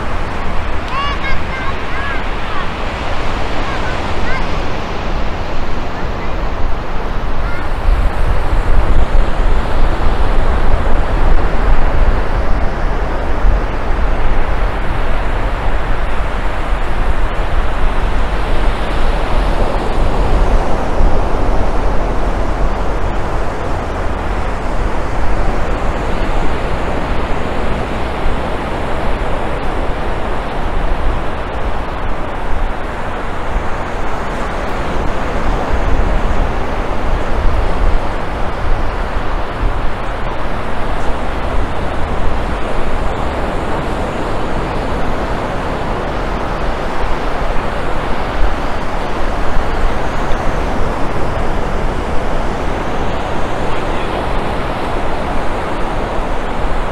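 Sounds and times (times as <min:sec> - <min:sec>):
surf washing: 0:00.0 - 0:56.9
wind buffeting microphone: 0:00.0 - 0:56.9.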